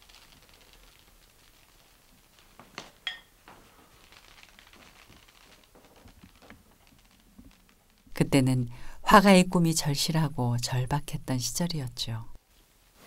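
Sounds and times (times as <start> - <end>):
faint scratching and tapping: 0.0 - 8.2
hard dish clinks: 3.1 - 3.3.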